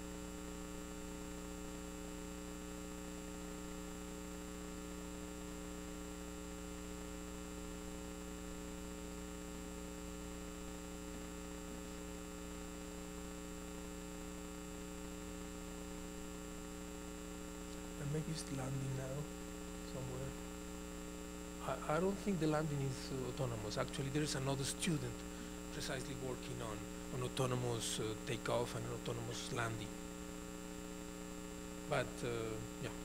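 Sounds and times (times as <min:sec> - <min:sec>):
electrical mains hum: 0:00.0 - 0:33.0
faint hiss: 0:17.6 - 0:20.5, 0:21.4 - 0:33.0.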